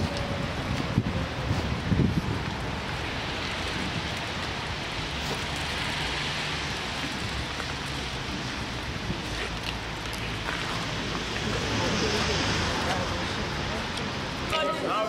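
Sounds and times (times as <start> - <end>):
rain hissing: 0.0 - 14.5.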